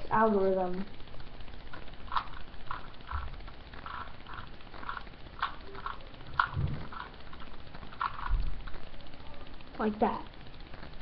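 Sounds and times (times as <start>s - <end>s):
puzzle cube clicking turns: 1.0s - 9.6s.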